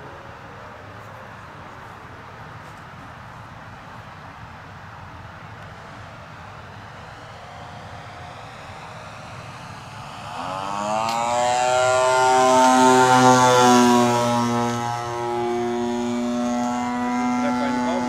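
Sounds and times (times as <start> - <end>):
model airplane engine and propeller: 0.0 - 18.0.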